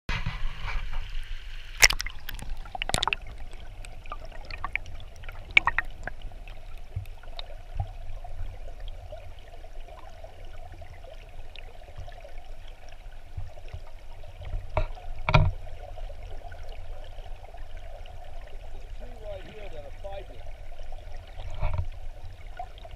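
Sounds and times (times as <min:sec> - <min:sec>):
muffled underwater water rumble: 0:00.1 - 0:22.9
sharp knocks and clicks: 0:14.7 - 0:15.6.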